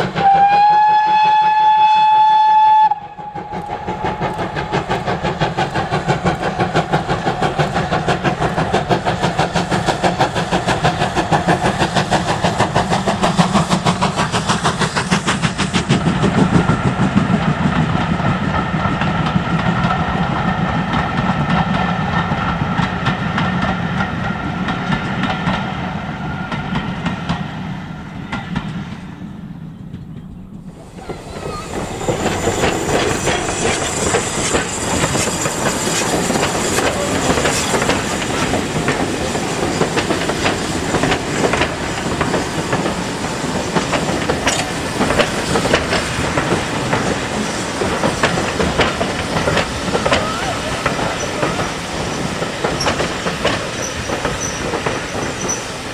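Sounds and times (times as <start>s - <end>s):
steam hissing: 0.0s - 28.8s, 30.6s - 55.9s
steam locomotive exhaust beats: 0.0s - 55.9s
coach wheels clattering over joints: 29.8s - 55.9s.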